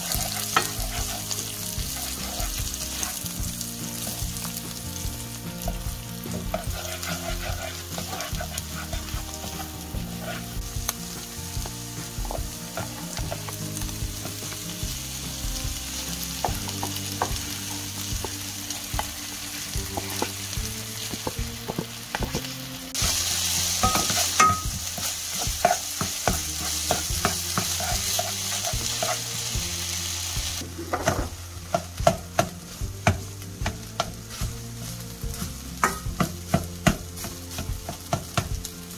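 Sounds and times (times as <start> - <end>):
spatula scraping a pan: 0.0 - 5.0, 5.7 - 15.3, 23.0 - 29.6
food sizzling in a pan: 0.0 - 38.9.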